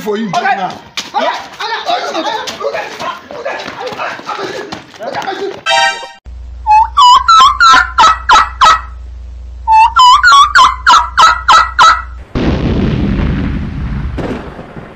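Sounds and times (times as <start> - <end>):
turkey gobbling: 6.7 - 9.0, 9.7 - 12.2.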